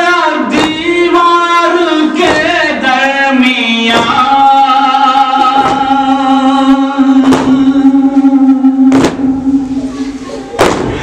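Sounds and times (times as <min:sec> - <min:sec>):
man singing long note: 0:00.0 - 0:10.3
hands beating on chests: 0:02.2 - 0:02.7, 0:04.0 - 0:04.3, 0:05.4 - 0:05.9.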